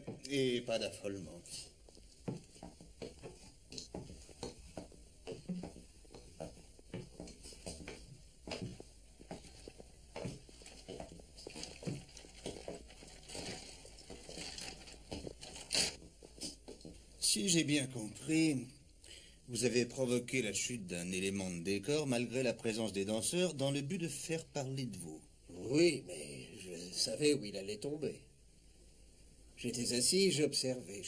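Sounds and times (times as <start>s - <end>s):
footsteps on stage floor: 1.4s - 17.1s.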